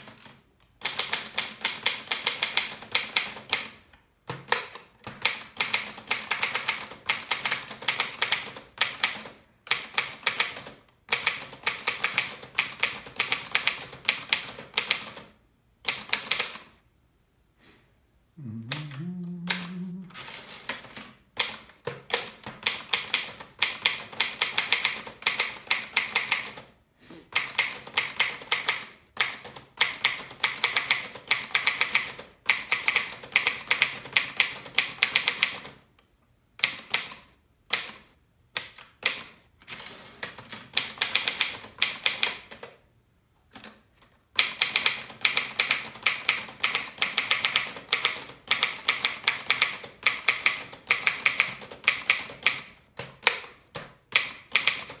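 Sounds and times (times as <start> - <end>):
typewriter keystrokes clacking: 0.0 - 15.3, 20.7 - 26.7, 27.4 - 35.8, 44.4 - 55.0.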